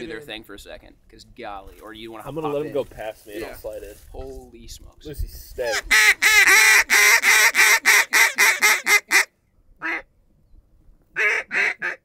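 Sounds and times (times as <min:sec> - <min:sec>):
duck call quacks: 0:05.7 - 0:10.1, 0:11.2 - 0:12.0.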